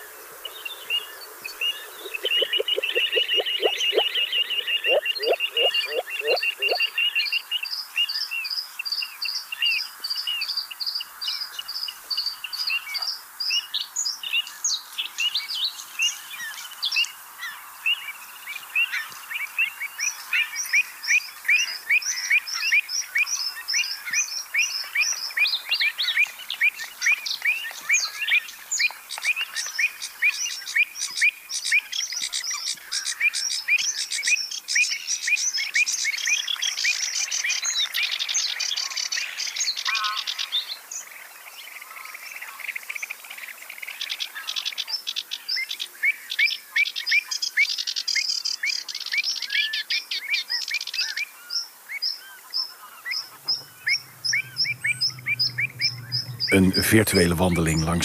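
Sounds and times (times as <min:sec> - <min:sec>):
fast chattering birdsong: 0:00.0 - 0:06.9, 0:53.0 - 0:58.0
marsh birds chirping: 0:00.0 - 0:07.2, 0:50.8 - 0:58.0
low hum: 0:53.3 - 0:58.0.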